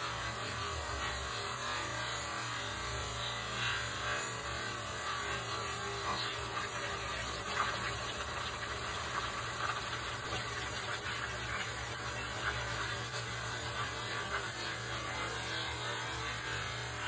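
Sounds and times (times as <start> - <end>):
chicken deep-frying in oil: 3.7 - 17.0
oil crackling and popping: 6.4 - 14.4.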